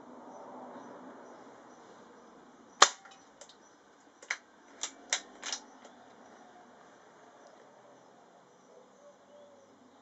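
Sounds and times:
air rifle shot: 2.8 - 3.2.

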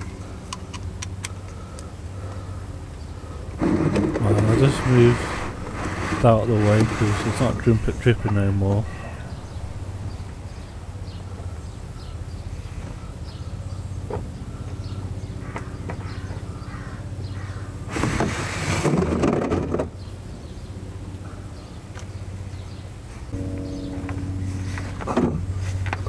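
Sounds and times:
steady low hum: 0.0 - 15.4, 23.2 - 26.0.

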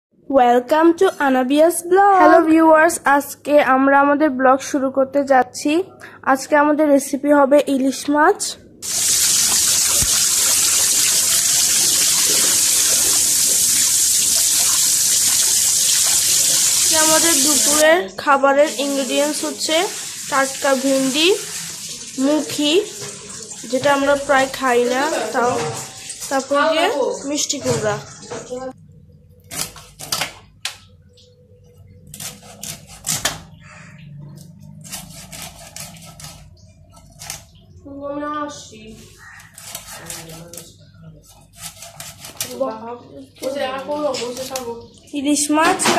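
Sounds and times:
tap water running into metal bowl: 8.8 - 17.8, 18.6 - 28.7.

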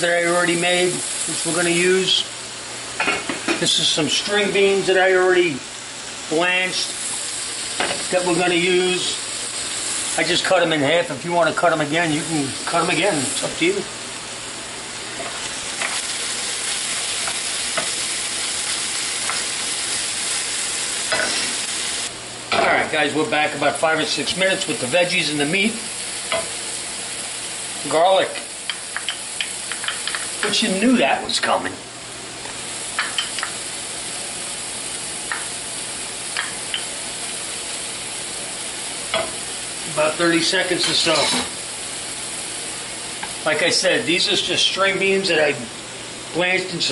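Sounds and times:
food sizzling in a frying pan: 0.0 - 46.9
wooden spoon scraping a pan: 40.8 - 41.5.

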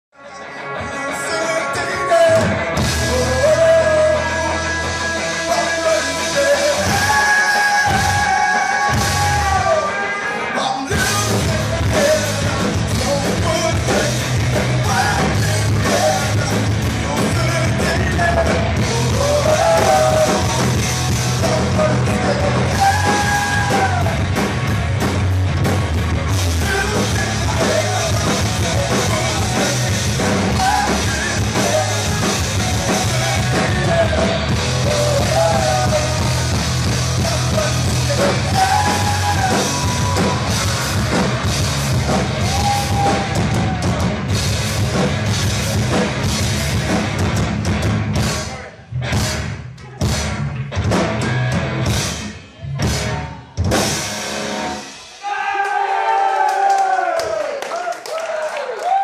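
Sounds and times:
electric guitar: 0.2 - 55.1
drums: 0.2 - 59.0
man singing: 0.3 - 24.2, 26.4 - 40.4
bass guitar: 0.3 - 55.3.

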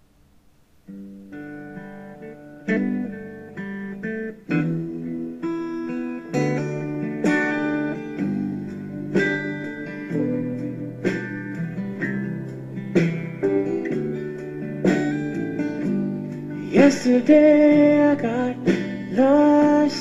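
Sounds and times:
guitar plucked notes and chords: 0.8 - 20.0.

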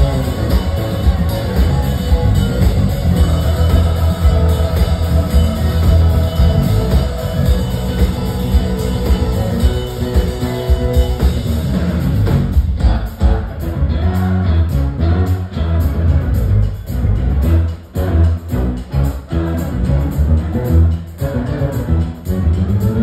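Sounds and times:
electric guitar: 0.0 - 16.4
drum kit: 0.0 - 23.0
electric bass: 0.0 - 23.0.

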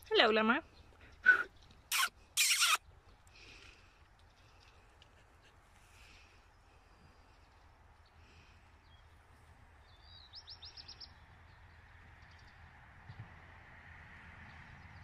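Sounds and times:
small bird chirping: 1.5 - 2.9.

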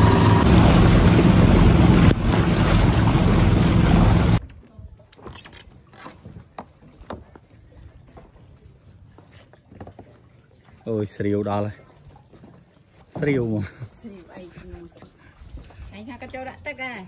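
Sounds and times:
boat engine running: 0.0 - 4.4
water splashing along boat hull: 0.0 - 17.0.

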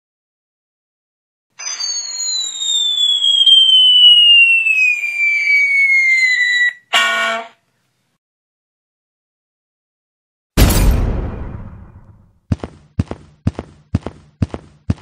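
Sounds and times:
cartoon falling whistle: 1.6 - 7.5.

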